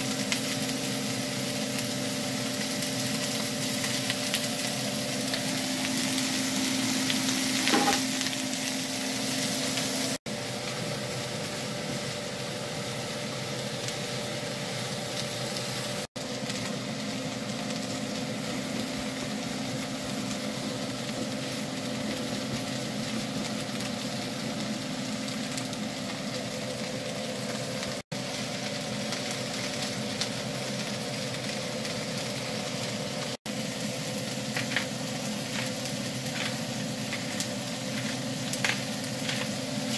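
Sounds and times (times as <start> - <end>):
onions sizzling in butter: 0.0 - 39.9
spatula stirring: 35.5 - 39.9.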